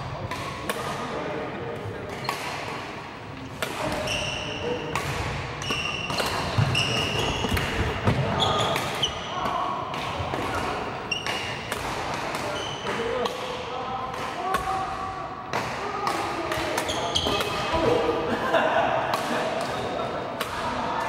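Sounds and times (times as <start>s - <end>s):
rackets striking shuttlecock: 2.1s - 14.7s
shoes squeaking on wooden floor: 5.6s - 7.6s.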